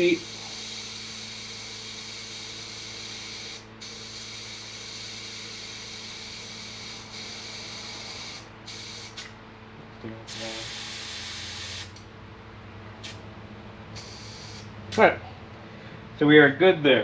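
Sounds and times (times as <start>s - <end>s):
compressed air hissing: 0.0s - 9.3s, 10.3s - 12.0s, 13.0s - 13.2s, 13.9s - 14.8s.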